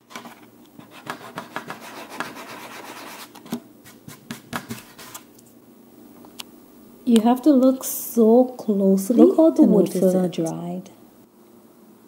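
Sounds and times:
sanding sponge on wood: 0.9s - 3.2s.

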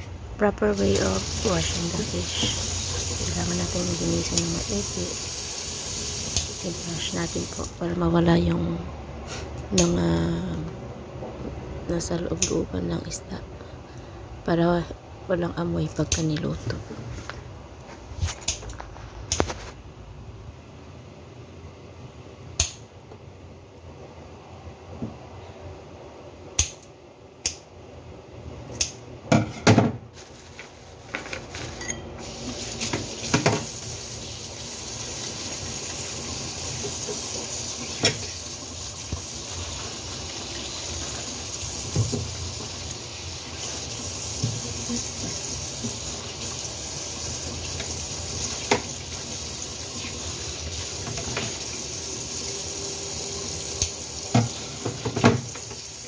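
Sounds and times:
tap water running into sink: 1.0s - 7.7s, 32.3s - 56.0s
scissors clicking in steel sink: 12.4s - 12.6s, 22.6s - 22.8s, 26.6s - 27.6s, 28.7s - 29.0s.

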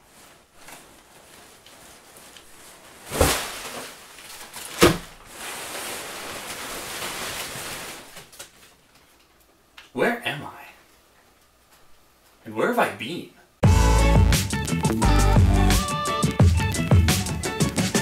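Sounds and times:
packing paper rustling: 0.0s - 9.4s.

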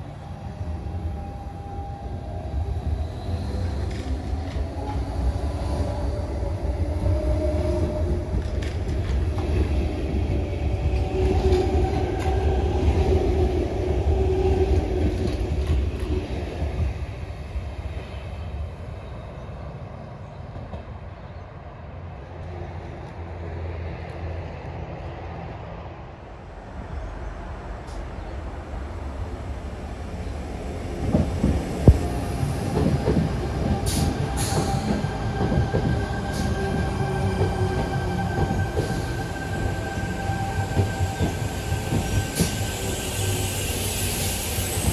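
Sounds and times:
electric train passing: 0.0s - 44.9s.

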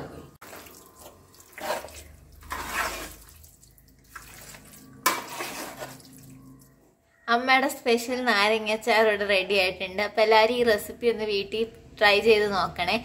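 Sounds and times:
hand mixing wet pickle: 0.4s - 6.6s.

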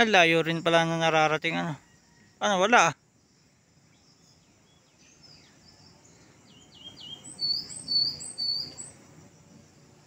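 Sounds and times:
songbird whistling: 4.0s - 9.0s.

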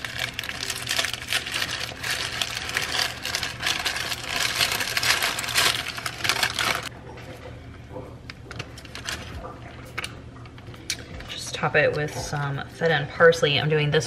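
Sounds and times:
stiff paper crinkling: 0.0s - 6.9s, 8.4s - 9.6s.

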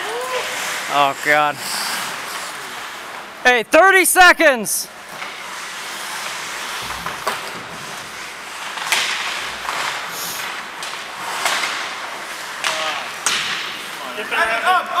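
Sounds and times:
skates on ice: 0.0s - 3.3s, 5.1s - 15.0s
hockey sticks and puck clacking: 5.1s - 15.0s.

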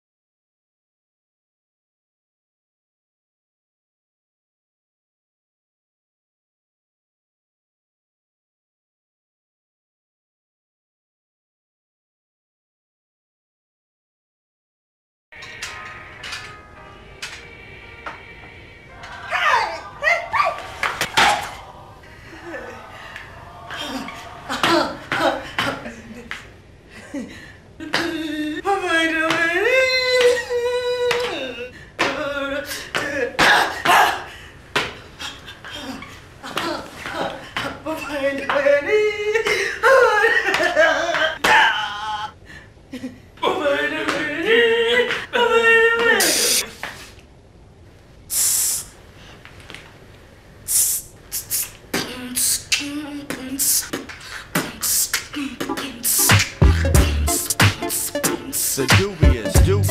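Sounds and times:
person singing long note: 15.4s - 20.0s, 56.9s - 59.9s
beatboxing: 50.7s - 53.0s, 53.6s - 59.9s.

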